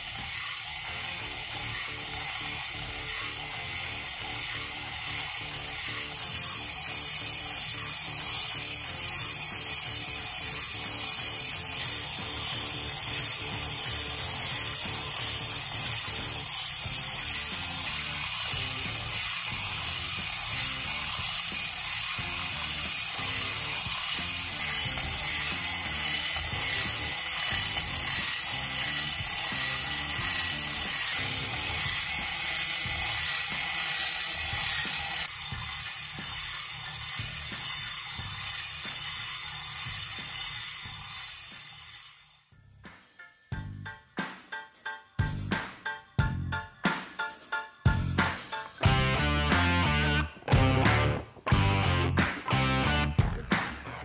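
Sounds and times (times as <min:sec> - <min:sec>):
engine model mechanical rattle: 0:00.0 - 0:42.5.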